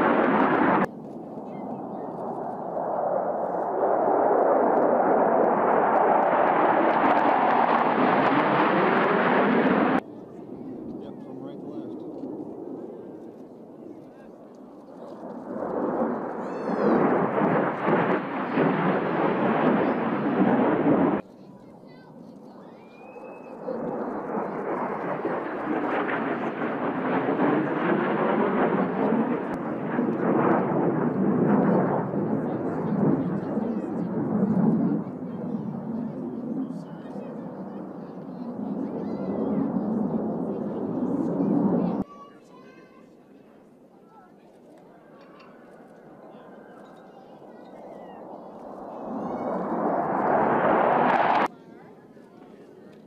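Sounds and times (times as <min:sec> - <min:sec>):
fighter jets flying past: 0:00.0 - 0:42.1, 0:45.0 - 0:51.6.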